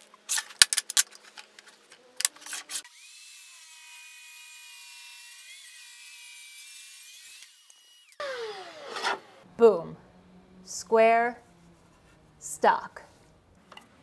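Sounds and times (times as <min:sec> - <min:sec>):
table saw motor whine: 0:07.2 - 0:10.7
saw blade spinning down: 0:08.1 - 0:09.4.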